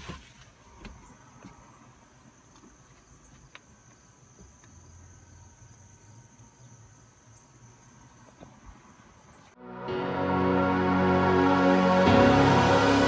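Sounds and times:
high-pitched insect hum: 2.3s - 9.6s.

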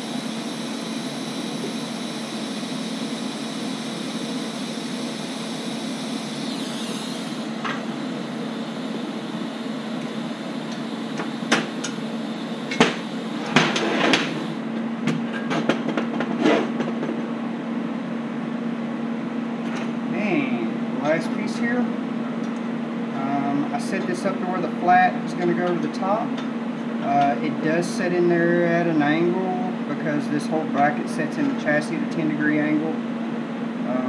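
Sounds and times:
welding arc hissing: 0.0s - 14.6s.

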